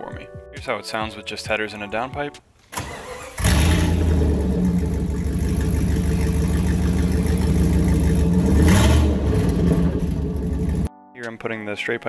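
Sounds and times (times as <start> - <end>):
loud car engine idling and revving: 3.2 - 10.9.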